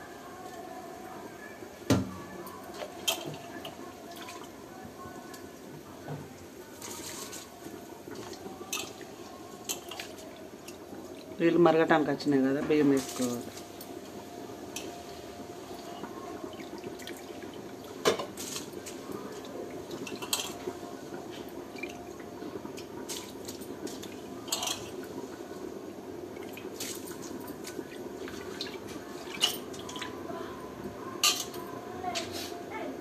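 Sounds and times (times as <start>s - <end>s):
pot bubbling: 0.0s - 32.0s
rice splashing into boiling water: 16.6s - 20.6s.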